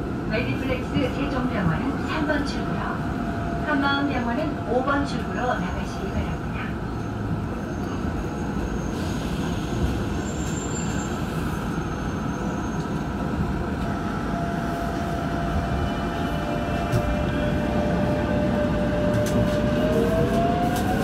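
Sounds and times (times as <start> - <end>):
rumble of train wheels: 0.0 - 21.0.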